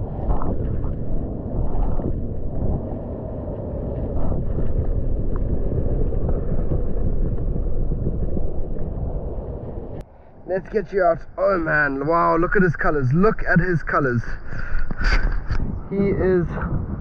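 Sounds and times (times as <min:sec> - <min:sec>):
faint crackles and clicks: 0:00.0 - 0:10.0, 0:14.4 - 0:15.9
muffled underwater rumble: 0:00.0 - 0:10.0, 0:14.3 - 0:17.0.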